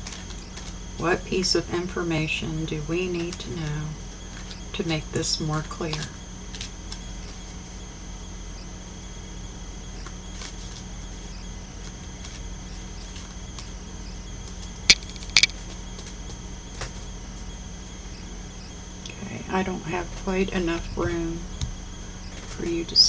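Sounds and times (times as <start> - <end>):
low electrical hum: 0.0 - 23.0
sharp clicks: 14.9 - 15.5.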